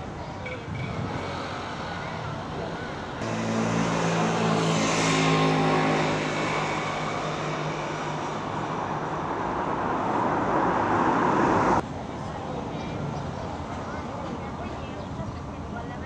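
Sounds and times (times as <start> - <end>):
rushing road noise: 0.0 - 16.0
vehicle engine hum: 0.2 - 11.8.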